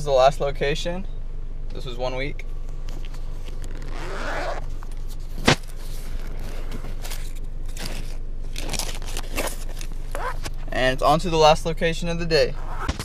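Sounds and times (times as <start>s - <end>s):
steady low hum: 0.0s - 13.0s
paper bills rustling: 4.9s - 10.6s.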